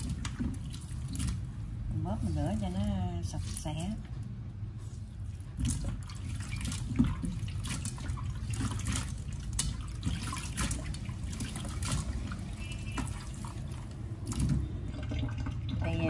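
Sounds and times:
water splashing and dripping: 0:00.0 - 0:04.1, 0:04.9 - 0:16.0.

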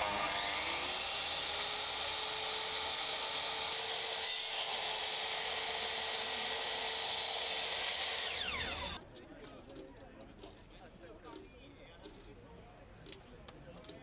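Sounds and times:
electric power tool running: 0:00.0 - 0:09.0.

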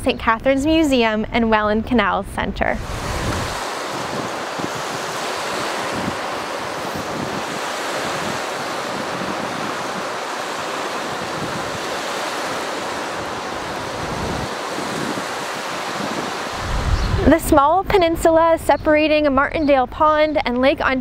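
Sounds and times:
wind gusting on microphone: 0:00.1 - 0:20.4
waves washing against shore: 0:02.7 - 0:17.6.

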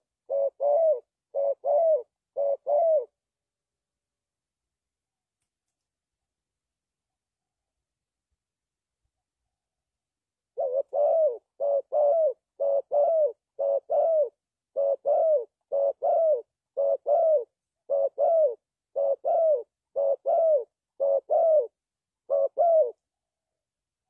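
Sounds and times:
dove cooing: 0:00.0 - 0:03.2, 0:10.6 - 0:23.1.

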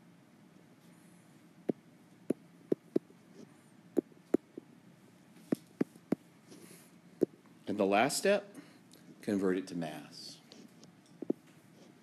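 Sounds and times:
faint room hum: 0:00.0 - 0:12.0
stylus tapping on screen: 0:02.7 - 0:03.0, 0:11.2 - 0:11.4.

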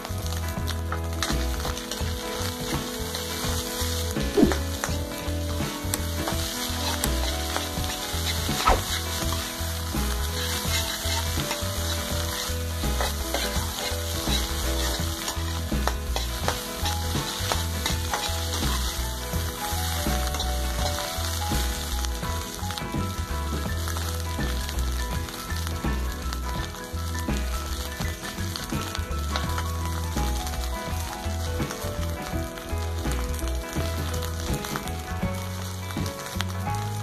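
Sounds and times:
rice sizzling in a wok: 0:00.0 - 0:37.0
metal ladle scraping wok: 0:06.6 - 0:18.9.

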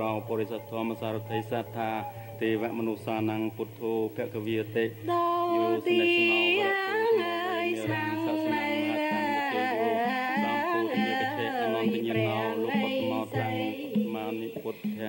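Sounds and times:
person singing ornamented song: 0:00.0 - 0:15.0.

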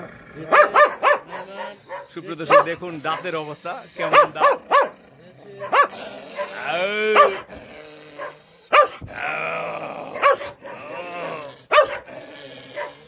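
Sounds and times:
dog barking and growling: 0:00.0 - 0:13.0
dog snarling: 0:00.0 - 0:13.0.

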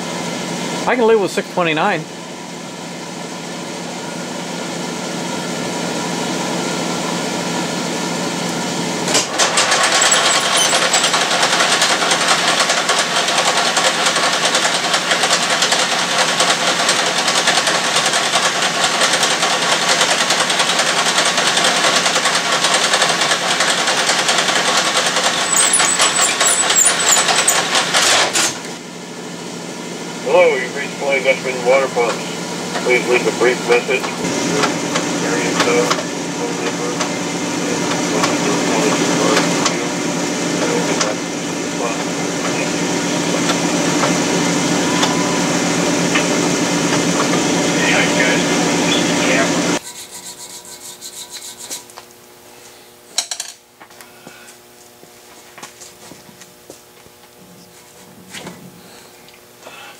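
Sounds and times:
lathe tool cutting steel: 0:09.7 - 0:12.5, 0:24.1 - 0:28.4
metal lathe humming: 0:09.8 - 0:12.0, 0:25.2 - 0:28.0.

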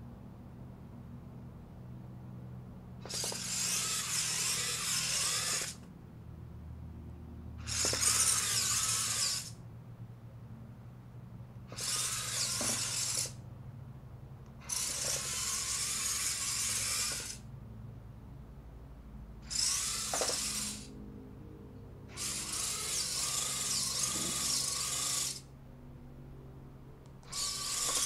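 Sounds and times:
small electric motors whirring: 0:03.0 - 0:05.9, 0:07.6 - 0:09.6, 0:11.7 - 0:13.4, 0:14.6 - 0:17.5, 0:19.4 - 0:20.9, 0:22.1 - 0:25.5, 0:27.2 - 0:28.0.

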